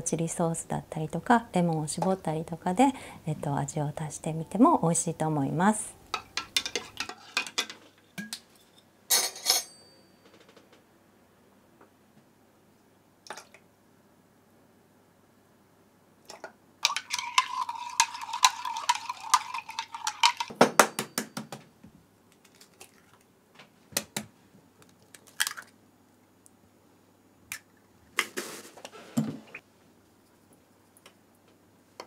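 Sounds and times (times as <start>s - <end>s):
eggs cracking into metal bowl: 16.3s - 21.1s, 24.8s - 25.8s
spoon clinking in ceramic jug: 16.8s - 20.5s.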